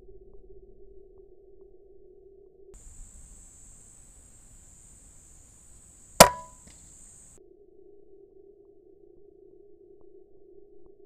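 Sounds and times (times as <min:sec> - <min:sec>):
short ring: 0:02.8 - 0:07.2
air rifle shot: 0:02.8 - 0:07.3.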